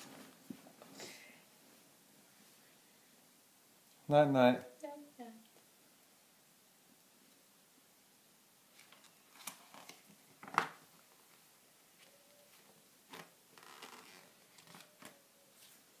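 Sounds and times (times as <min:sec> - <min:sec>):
magazine pages rustling: 0:08.7 - 0:11.4, 0:13.1 - 0:15.9.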